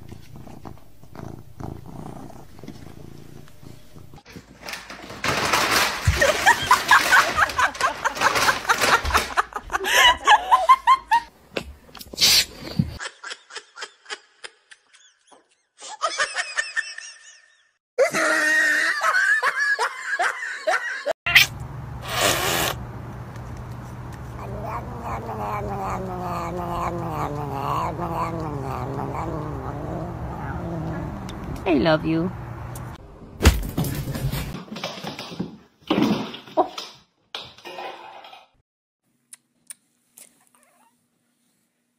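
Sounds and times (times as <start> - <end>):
people laughing: 6.2 - 11.3, 13.0 - 21.1
cat calling: 24.3 - 31.4.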